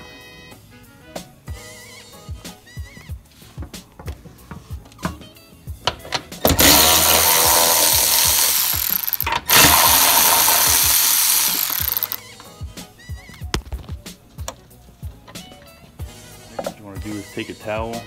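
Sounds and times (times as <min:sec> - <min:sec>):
cordless ratchet running: 0:06.5 - 0:12.2.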